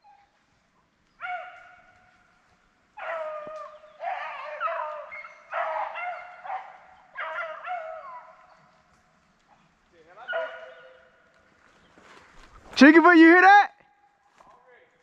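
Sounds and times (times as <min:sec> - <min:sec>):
hounds baying: 0:01.1 - 0:11.4.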